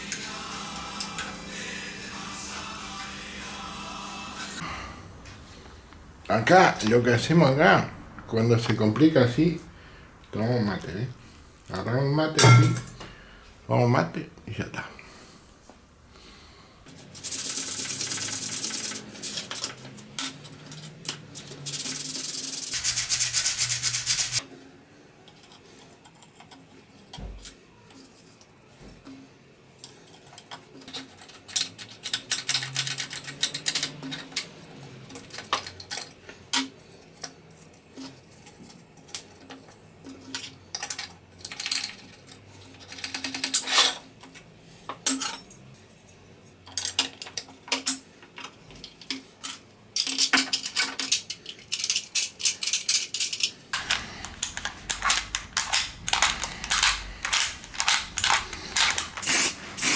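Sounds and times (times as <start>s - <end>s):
metal latch clicks and scrapes: 50.2s - 59.9s.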